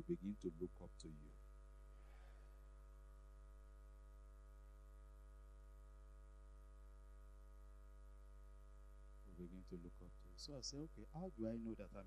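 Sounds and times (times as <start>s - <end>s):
faint electrical mains hum: 0.0s - 12.0s.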